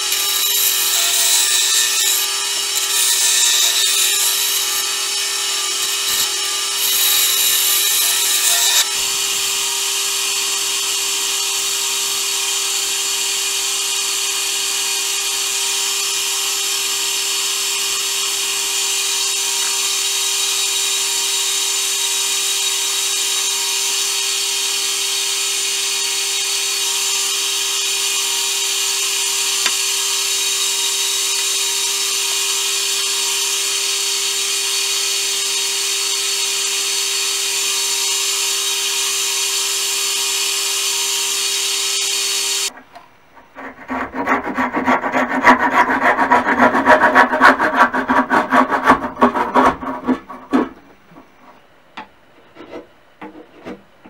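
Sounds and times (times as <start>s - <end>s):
wood lathe motor humming: 0.0s - 42.8s, 43.6s - 50.8s.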